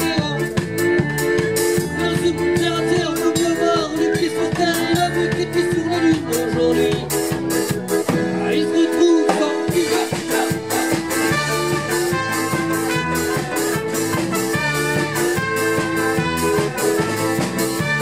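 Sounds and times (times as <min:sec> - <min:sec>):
accordion: 0:00.0 - 0:18.0
trumpet: 0:01.5 - 0:18.0
quick steady drum beat: 0:09.7 - 0:18.0.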